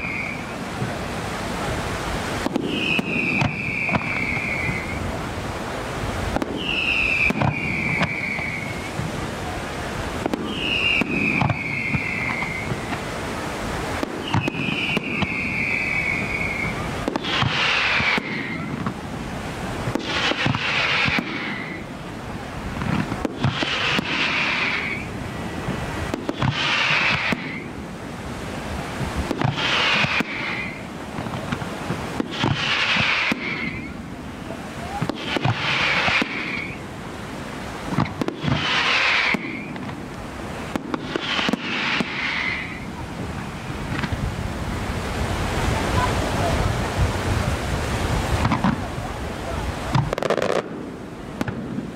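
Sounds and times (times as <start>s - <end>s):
falling firework whistle: 0.0s - 1.0s, 2.4s - 5.2s, 6.3s - 9.6s, 10.2s - 13.2s, 13.9s - 19.0s, 19.9s - 22.0s, 22.8s - 27.8s, 29.0s - 36.9s, 37.9s - 44.3s
fireworks bangs and crackling: 0.0s - 51.9s.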